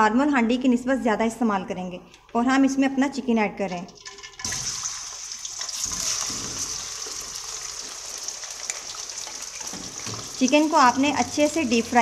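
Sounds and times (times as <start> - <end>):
chicken sizzling in hot oil: 4.1 - 12.0.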